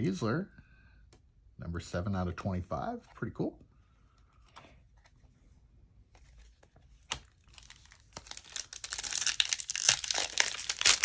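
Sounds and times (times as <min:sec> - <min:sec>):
foil wrapper tearing and crinkling: 0:07.1 - 0:11.0.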